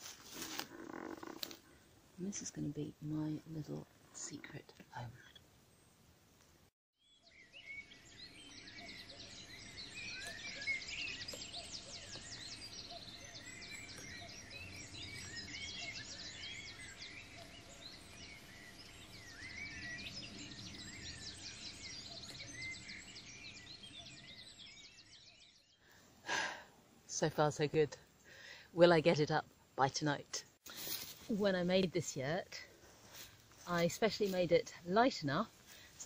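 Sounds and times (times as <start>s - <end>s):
faint low background noise: 1.4s - 6.7s
small birds chirping and trilling: 7.0s - 26.6s.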